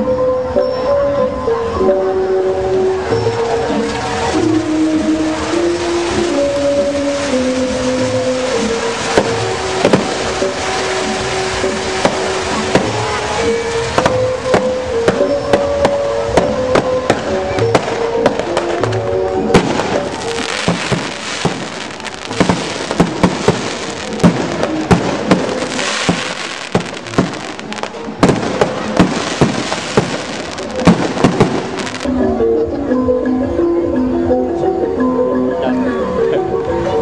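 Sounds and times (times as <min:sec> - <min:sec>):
show music: 0:00.0 - 0:37.0
fireworks bangs and crackles: 0:03.0 - 0:32.1
fireworks hiss: 0:03.8 - 0:32.1.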